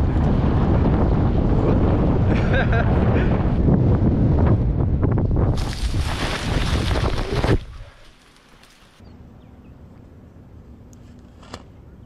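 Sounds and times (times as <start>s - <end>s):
wind buffeting microphone: 0.0s - 7.9s
outdoor background noise: 0.0s - 12.0s.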